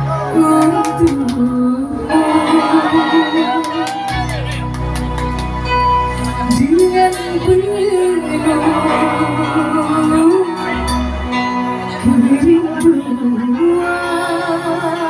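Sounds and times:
instrumental accompaniment with bass: 0:00.0 - 0:15.0
woman singing: 0:00.1 - 0:04.0, 0:06.4 - 0:11.0, 0:12.0 - 0:15.0.

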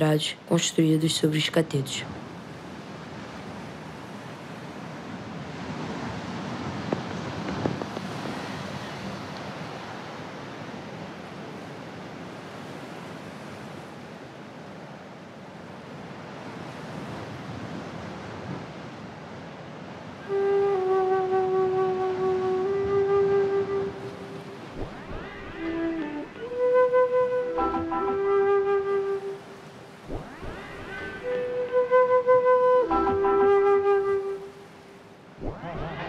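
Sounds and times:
ocean waves: 0:00.0 - 0:36.0
wind: 0:00.0 - 0:36.0
flute-like music note: 0:20.2 - 0:34.8, 0:35.4 - 0:36.0.

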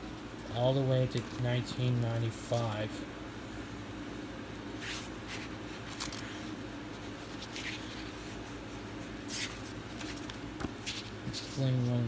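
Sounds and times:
steady low hum: 0:00.0 - 0:12.0
comic book pages turning: 0:04.8 - 0:12.0.

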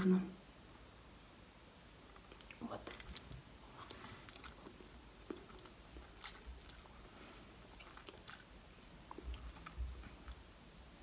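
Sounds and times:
wet mouth clicks: 0:02.2 - 0:06.9
chewing and slurping noodles: 0:02.2 - 0:10.2.

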